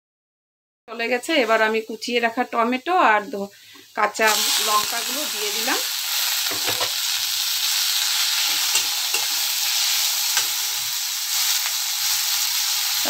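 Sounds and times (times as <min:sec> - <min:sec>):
vegetables sizzling in hot oil: 0:00.9 - 0:13.0
metal spatula scraping a pan: 0:06.4 - 0:12.1.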